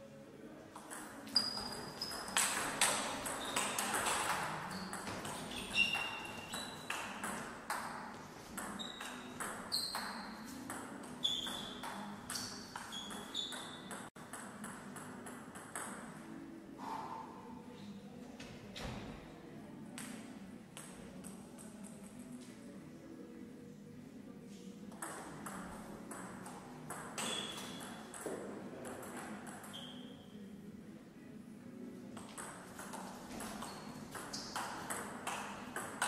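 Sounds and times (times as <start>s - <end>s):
ping pong ball bouncing on table: 0.7s - 16.2s, 24.9s - 29.9s, 32.2s - 36.0s
ping pong ball hitting bats: 0.7s - 16.2s, 24.9s - 29.9s, 32.2s - 36.0s.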